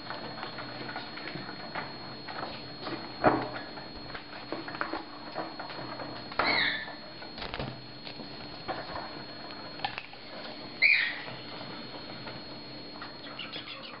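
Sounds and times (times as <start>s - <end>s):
bird chick calling: 10.8s - 11.2s, 13.2s - 14.0s.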